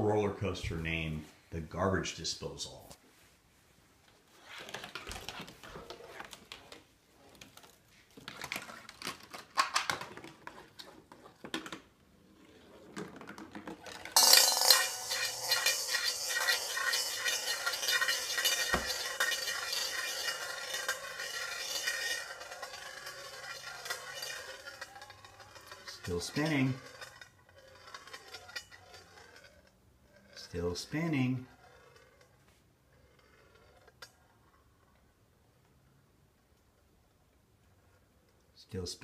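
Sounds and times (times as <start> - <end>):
marble rolling down cardboard: 4.1 - 35.0
marble rolling in metal bowl: 4.4 - 35.2.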